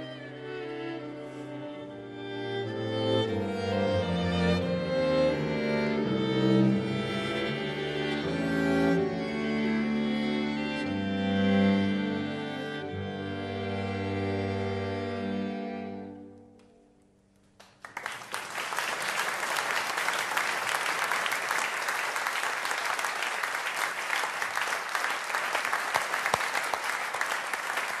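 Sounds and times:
string quartet chord: 0.0 - 16.6
audience applause: 17.6 - 28.0.

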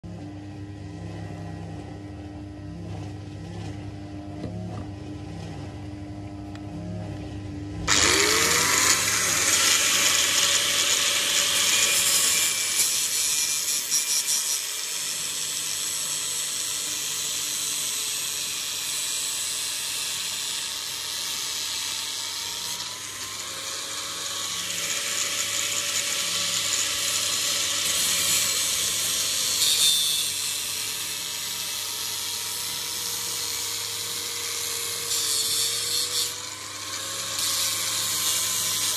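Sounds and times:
electric grinder motor humming: 7.8 - 38.9
knife blade grinding on wheel: 7.9 - 38.9.

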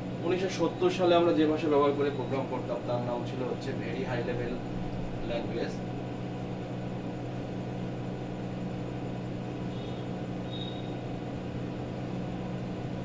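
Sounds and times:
low hum: 1.7 - 13.0.

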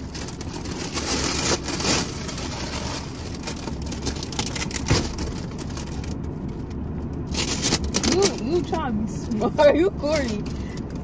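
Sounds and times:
wrapping paper tearing: 0.0 - 6.1.

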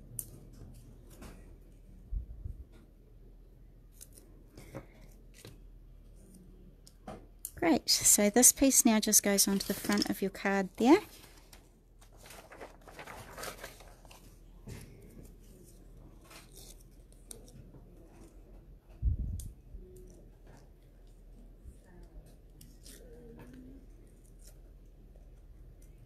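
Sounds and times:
paper rustling and tearing: 11.1 - 17.6.

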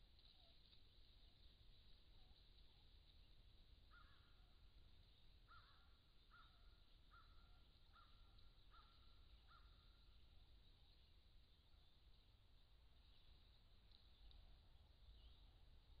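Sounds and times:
faint bird calls: 1.9 - 12.2.

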